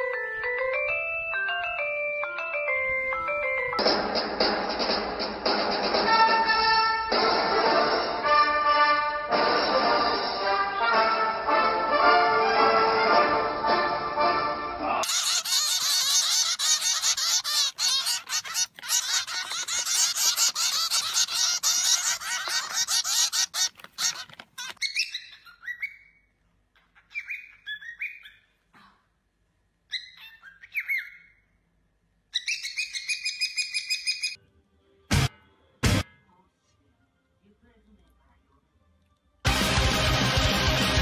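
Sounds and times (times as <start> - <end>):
birds chirping and squawking: 15.0 - 28.6, 29.9 - 31.5, 32.3 - 34.4.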